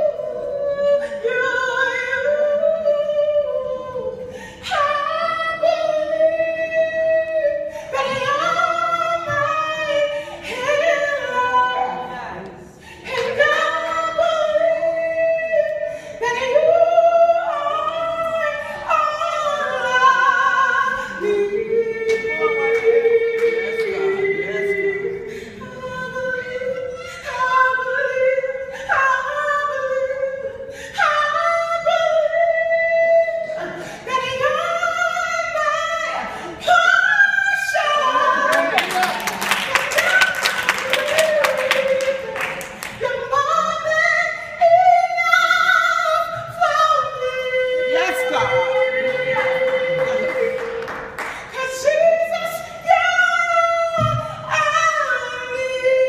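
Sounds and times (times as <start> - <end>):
woman singing gospel: 0.0 - 56.0
singer breathing: 4.2 - 4.7, 12.7 - 13.2, 51.2 - 51.6.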